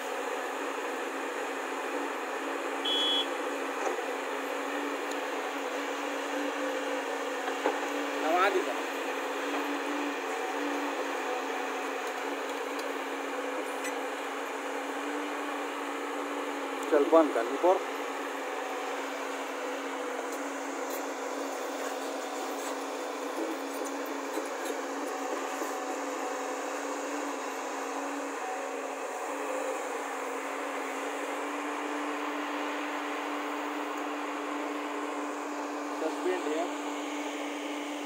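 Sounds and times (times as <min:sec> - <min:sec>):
excavator diesel engine running: 0:00.0 - 0:38.0
short high electronic beep: 0:02.9 - 0:03.3.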